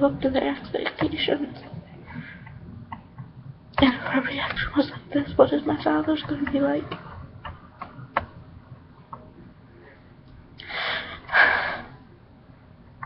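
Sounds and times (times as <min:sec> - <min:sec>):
person breathing loudly: 0:10.6 - 0:12.1.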